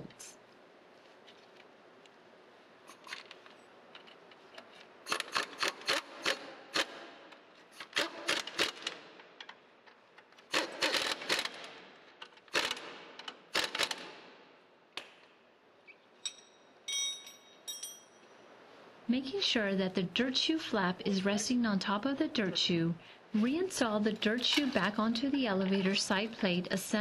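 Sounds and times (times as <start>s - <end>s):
impact wrench rapid clicks: 5.0s - 7.1s, 7.8s - 9.1s, 10.4s - 14.2s.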